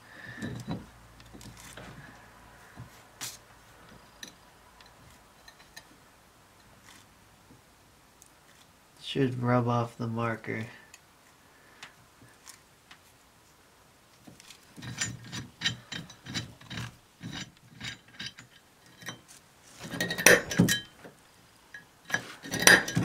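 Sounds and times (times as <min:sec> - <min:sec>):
steel tool scratching cast iron: 0:14.8 - 0:20.9, 0:22.1 - 0:23.0
metal knocks: 0:19.9 - 0:20.9, 0:22.1 - 0:23.0.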